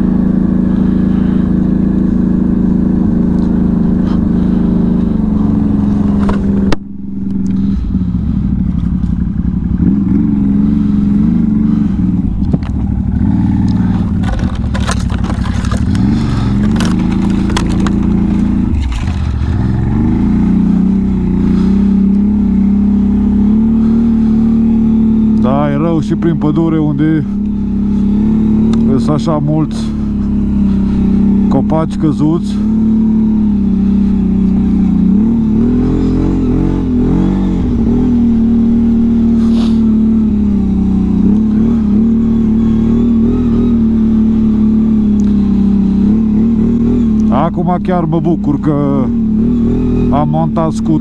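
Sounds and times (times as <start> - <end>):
atv engine running: 0.0 - 51.0
knocks and scrapes: 13.8 - 19.5.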